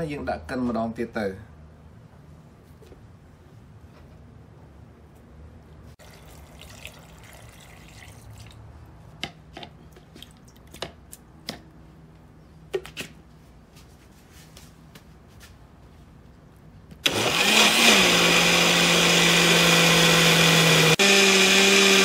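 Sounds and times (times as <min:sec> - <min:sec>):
dripping: 0:06.0 - 0:08.7
soft rustling: 0:13.4 - 0:16.2.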